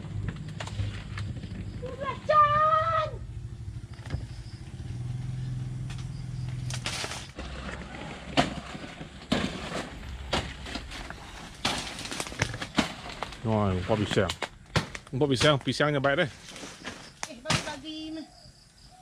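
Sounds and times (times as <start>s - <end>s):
low steady rumble: 0.0s - 15.1s
dry leaves crunching underfoot: 6.5s - 15.0s.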